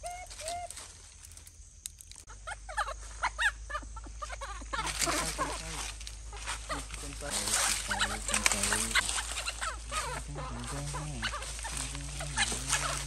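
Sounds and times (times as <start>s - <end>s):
baby monkey squeaking: 2.2s - 13.0s
rustling scrabbling noise: 4.8s - 13.0s.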